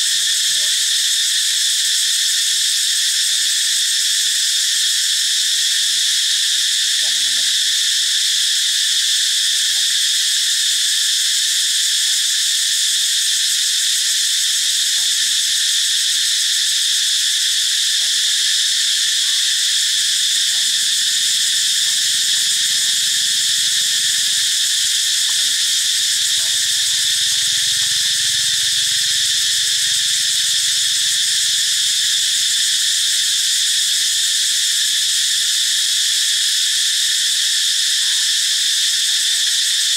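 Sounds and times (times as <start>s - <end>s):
buzzing chorus of insects: 0.0s - 39.9s.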